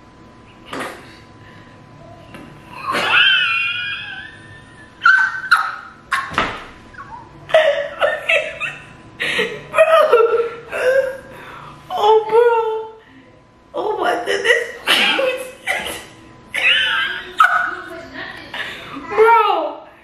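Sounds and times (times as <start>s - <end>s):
person laughing hard: 2.8s - 11.2s.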